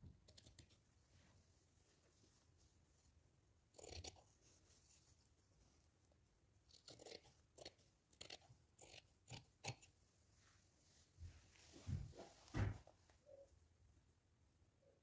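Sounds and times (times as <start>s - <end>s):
scissors cutting cloth: 0.2s - 0.8s, 3.7s - 4.4s, 6.7s - 10.0s.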